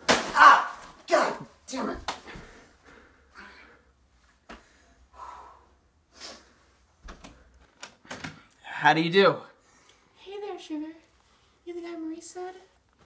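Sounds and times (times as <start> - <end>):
man breathing heavily and gasping: 2.3 - 6.9.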